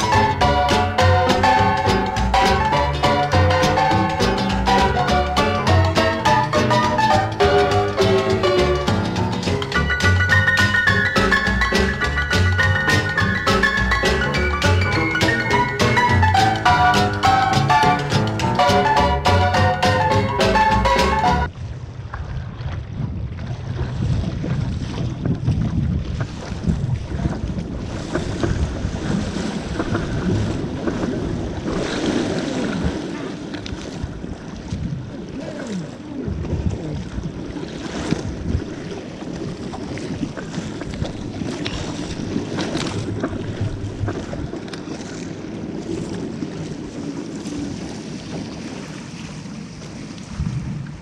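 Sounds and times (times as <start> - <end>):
paddle blade splashing: 0.0 - 51.0
sea water rushing and slapping: 0.0 - 51.0
wind buffeting microphone: 21.4 - 51.0.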